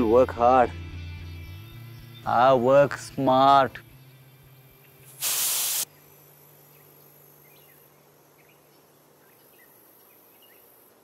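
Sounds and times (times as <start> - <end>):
low background hiss: 4.0 - 11.0.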